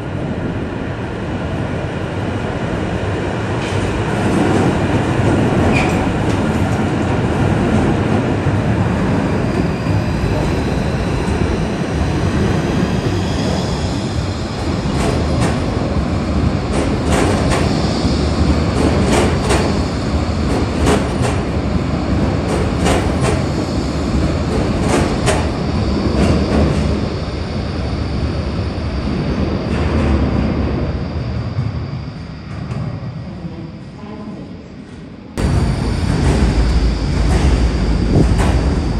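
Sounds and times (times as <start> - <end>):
train rumbling: 0.0 - 38.9.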